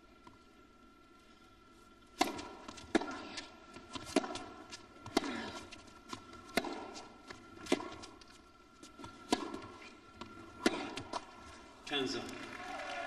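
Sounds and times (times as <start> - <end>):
tennis ball bouncing on court: 2.2 - 11.3
tennis ball struck by racket: 2.2 - 11.3.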